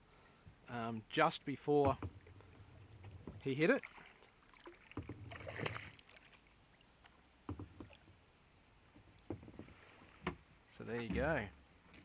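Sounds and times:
short knocks: 1.8 - 3.6, 7.5 - 8.0, 8.9 - 12.0
fish splashing at water surface: 3.7 - 6.4.

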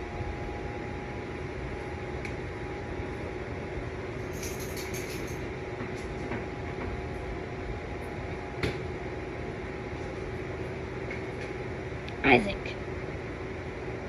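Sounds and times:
room hum with faint tones: 0.0 - 14.0.

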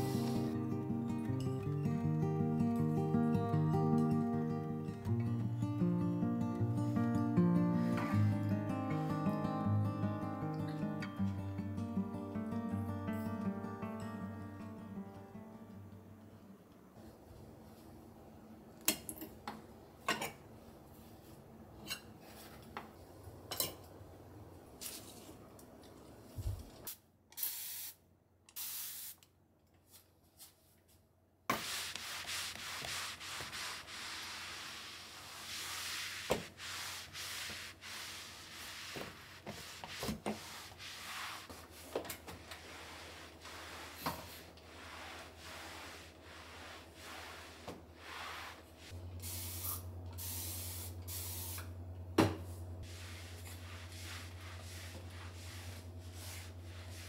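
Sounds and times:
mop swishing across surfaces: 0.0 - 0.6, 29.8 - 51.6, 52.4 - 57.0.

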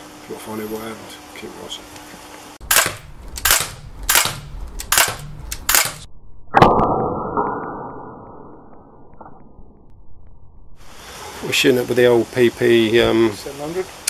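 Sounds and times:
sharp gunshot cracks: 2.6 - 7.0.

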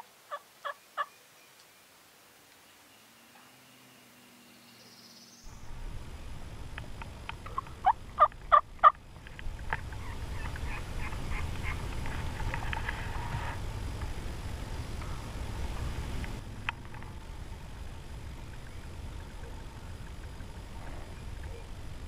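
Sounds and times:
turkey clucking: 0.0 - 1.2, 7.3 - 9.0, 9.7 - 13.6
turkey yelping: 0.0 - 1.2, 7.4 - 9.0, 9.8 - 11.9
low steady rumble: 5.4 - 22.0.

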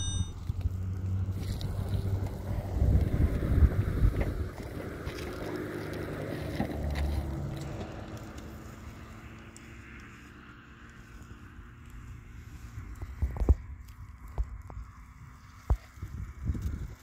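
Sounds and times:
low steady hum: 0.0 - 16.3
wind rumbling on microphone: 0.3 - 8.3, 11.8 - 17.0.

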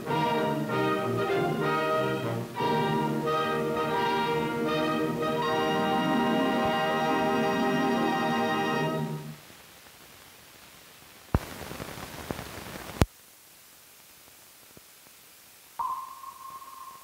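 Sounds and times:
crackling film hiss: 0.0 - 17.0
sharp pop: 11.4 - 11.9.

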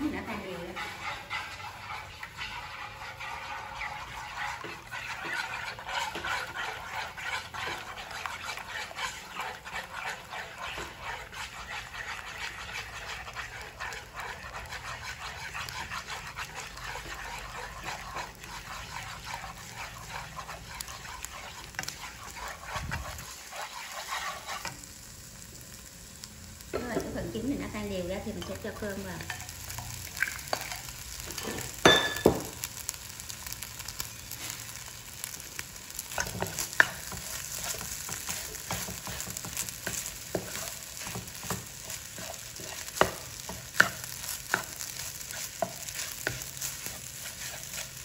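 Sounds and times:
chopsticks stirring in wok: 0.0 - 25.7, 26.6 - 48.0
eggs sizzling in oil: 0.0 - 48.0.

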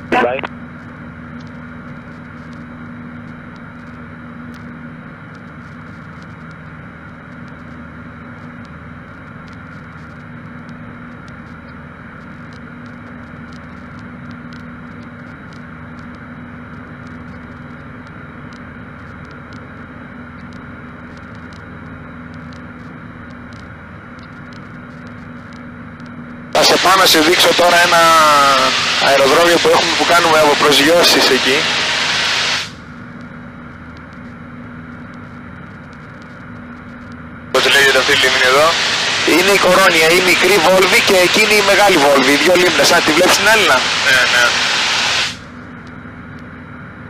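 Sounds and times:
aircraft engine drone: 0.0 - 47.0
airflow hiss: 31.2 - 32.8, 37.6 - 41.7, 42.3 - 45.4.

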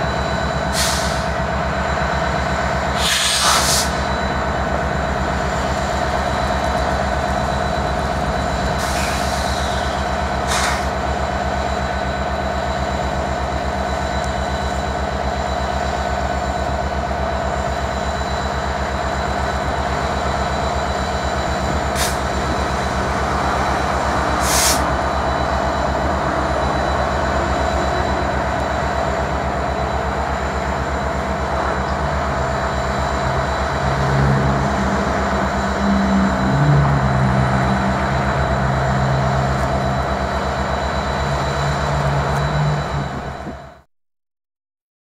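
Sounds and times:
high whine: 0.0 - 43.9
locomotive engine drone: 0.0 - 43.9
short hisses: 24.4 - 24.8.

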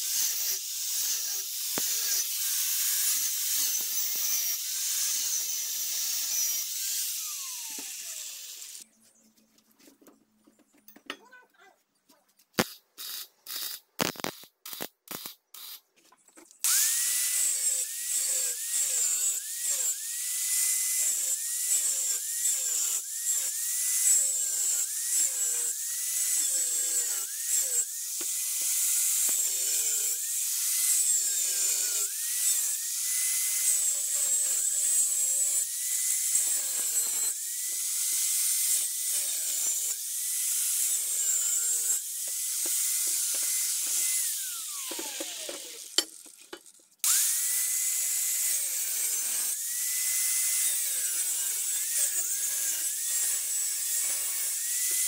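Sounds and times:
angle grinder cutting steel: 0.0 - 8.8, 12.6 - 15.8, 16.6 - 55.0
tack welding bursts: 12.6 - 15.9.

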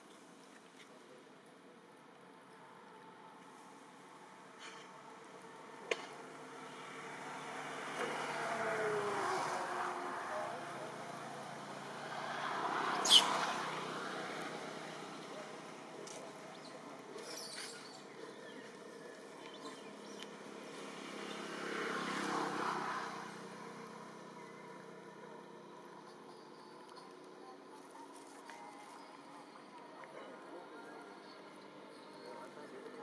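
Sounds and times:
vehicle passing by: 6.2 - 17.2, 18.6 - 25.9.

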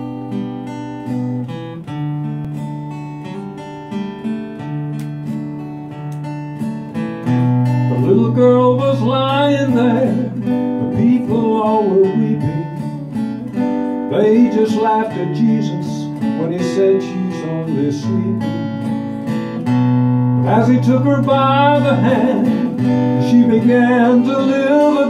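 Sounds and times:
acoustic guitar strumming: 0.0 - 25.0
man singing: 7.9 - 18.8, 20.4 - 25.0.

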